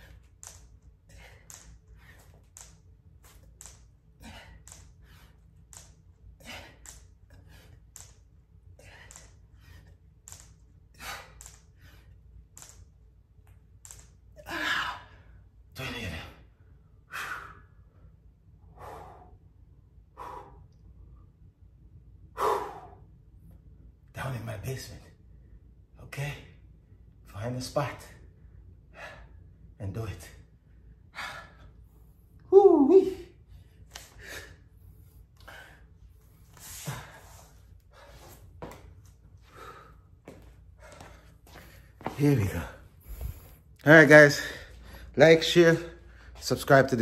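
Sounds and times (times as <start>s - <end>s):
man breathing hard: 4.2s - 5.5s, 6.4s - 8.1s, 8.7s - 10.0s, 18.6s - 20.9s, 22.3s - 23.2s, 31.0s - 32.2s, 33.4s - 42.2s, 42.9s - 43.8s.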